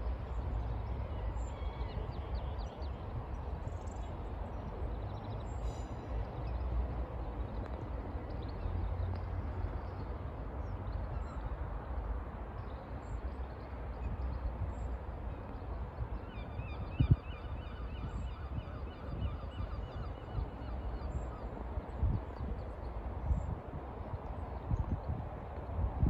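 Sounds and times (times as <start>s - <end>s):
wind buffeting microphone: 13.8s - 26.0s.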